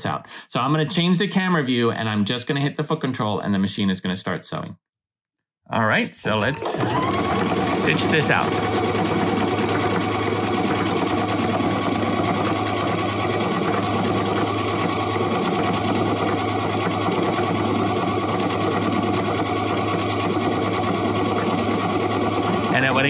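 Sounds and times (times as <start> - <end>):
sewing machine stitching: 6.4 - 23.0.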